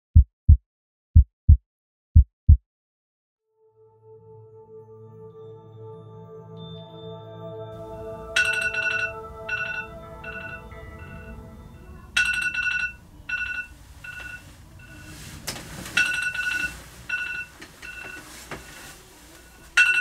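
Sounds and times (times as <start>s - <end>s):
phone alarm beeping: 12.3s - 15.1s, 16.0s - 18.2s
bedding rustling: 13.4s - 20.0s.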